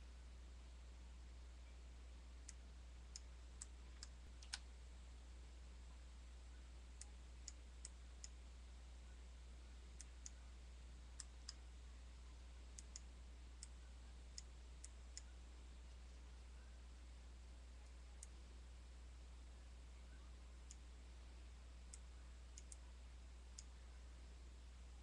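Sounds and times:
computer mouse and key clicks: 3.9 - 4.7, 21.9 - 22.9.

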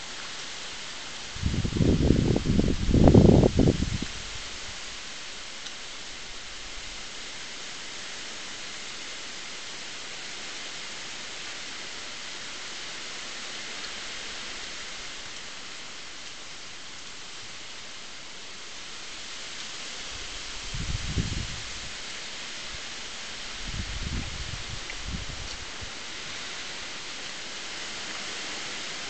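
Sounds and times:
camera microphone hiss: 0.0 - 29.0.

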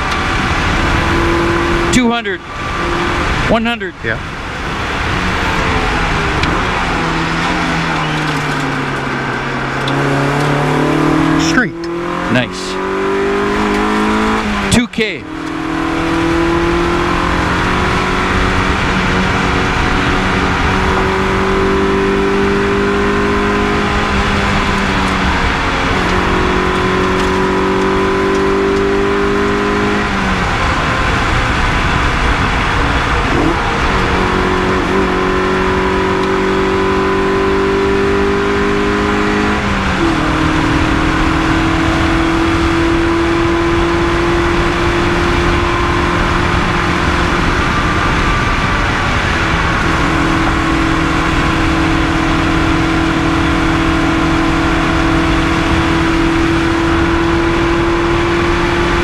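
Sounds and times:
car engine accelerating: 0.0 - 59.0.

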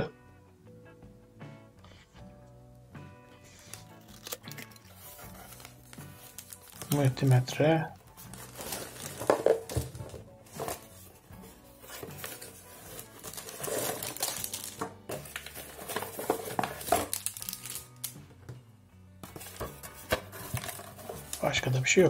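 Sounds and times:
background music: 0.0 - 22.0
plastic bags crinkling: 4.0 - 7.5, 8.2 - 10.8, 12.1 - 18.2
objects set down on table: 9.0 - 10.8.

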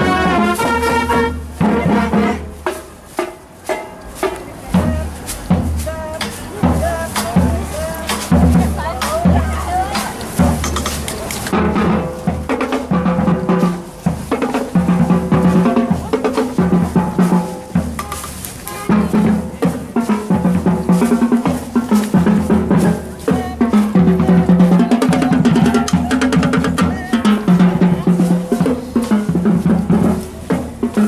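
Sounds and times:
low sousaphone notes: 0.0 - 2.6
higher horn lines: 0.0 - 31.0
marching band playing: 0.0 - 31.0
snare and bass drums beat: 0.0 - 31.0.

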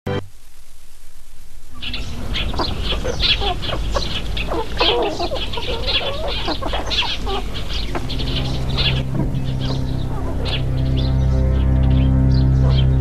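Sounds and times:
steady low hum: 0.1 - 13.0
chickens clucking: 1.8 - 13.0.

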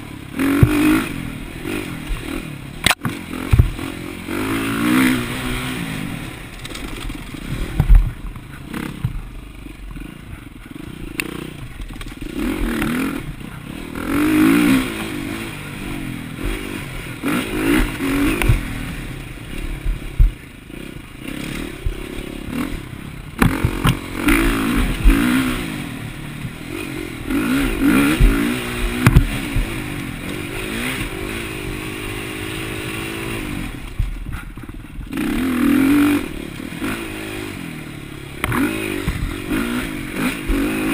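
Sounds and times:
dirt bike engine revving: 0.0 - 40.9
clatter and thuds: 0.5 - 1.0, 2.8 - 4.0, 6.4 - 9.4, 11.5 - 13.5, 23.3 - 25.5, 27.8 - 30.4, 33.8 - 35.2, 38.4 - 39.5.

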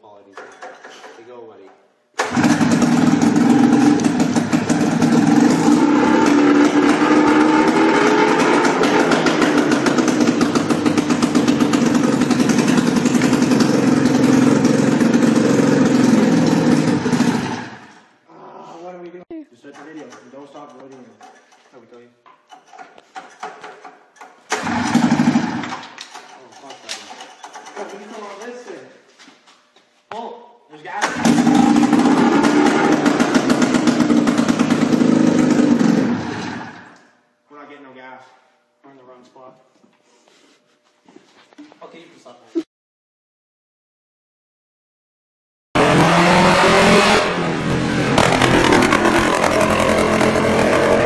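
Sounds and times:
two-stroke engine running: 2.2 - 17.7, 24.6 - 25.6, 31.1 - 36.2, 47.7 - 51.0.

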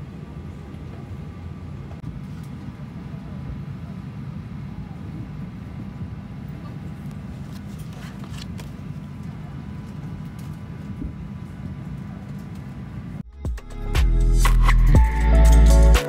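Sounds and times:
low rumble of aircraft cabin: 0.0 - 13.2
plastic card rustling and clicking: 7.5 - 8.8.

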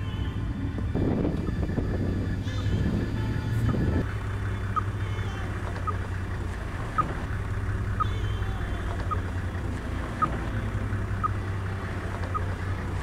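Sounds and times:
low rumble: 0.0 - 13.0.

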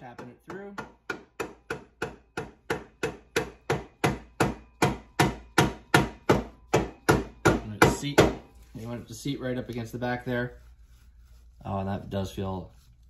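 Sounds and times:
rubber mallet tapping metal: 0.0 - 8.4.

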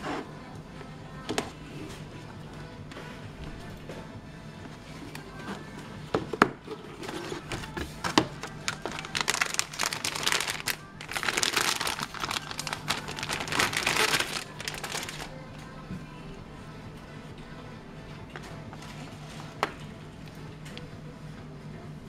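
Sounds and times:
plastic bag crinkling: 8.3 - 15.4.

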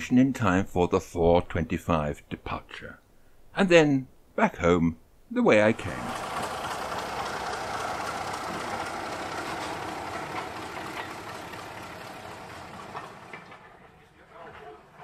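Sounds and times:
diesel locomotive engine passing: 5.6 - 15.0.

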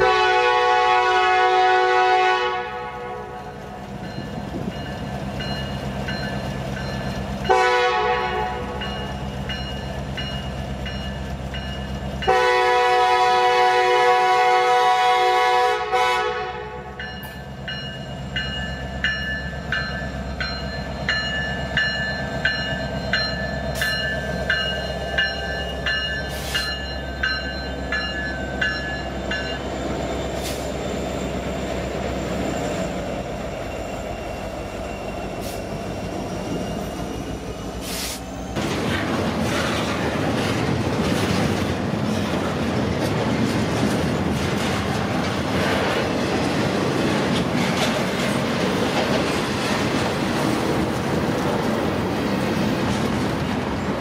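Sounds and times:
train air horn blasts: 0.0 - 3.4, 7.5 - 8.8, 12.3 - 17.0
wheel squeal: 29.6 - 38.6
wheels clicking over rail joints: 38.6 - 54.0.

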